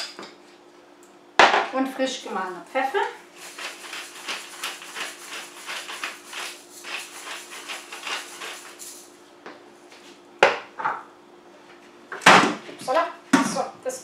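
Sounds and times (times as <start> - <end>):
pepper mill grinding: 2.6 - 9.1.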